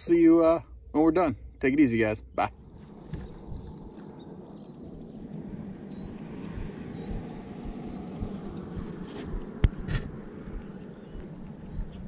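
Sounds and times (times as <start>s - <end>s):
wind rumble: 0.0s - 12.0s
faint rising chirps: 2.2s - 12.0s.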